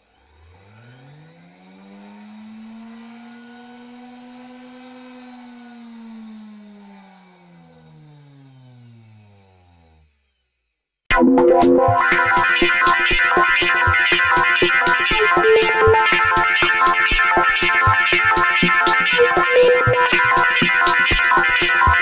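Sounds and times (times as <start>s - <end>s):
motor-like drone: 0.0s - 10.7s.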